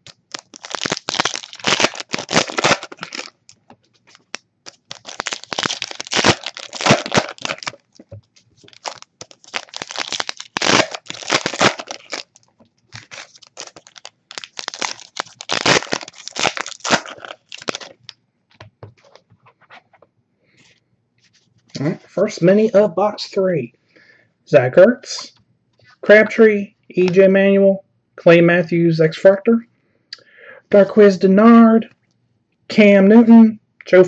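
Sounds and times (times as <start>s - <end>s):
wrapper crackling and crumpling: 0.0s - 18.2s.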